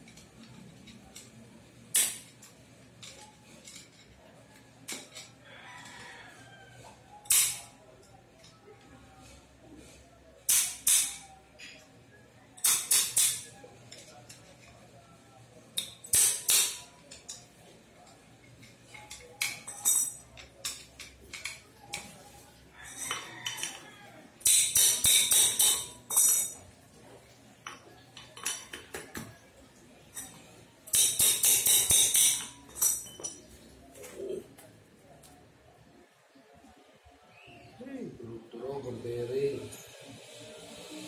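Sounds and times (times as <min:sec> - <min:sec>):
steel rod striking wheel bearings: 0:10.5 - 0:11.2, 0:15.8 - 0:16.9, 0:24.4 - 0:26.6, 0:30.9 - 0:33.4.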